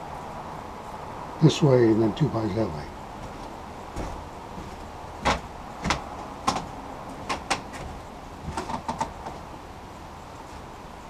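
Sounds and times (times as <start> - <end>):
footsteps on wooden deck: 2.9 - 9.6
light clicks and knocks: 3.2 - 9.5.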